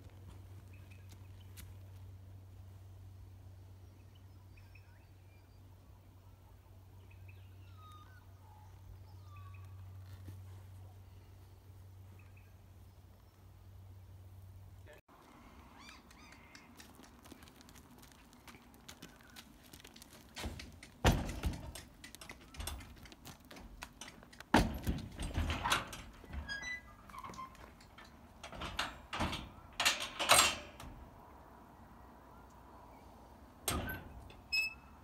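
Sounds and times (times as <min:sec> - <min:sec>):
hooves thudding on wooden ramp: 0:16.9 - 0:28.1
trailer knocks: 0:20.4 - 0:21.9, 0:24.5 - 0:26.4.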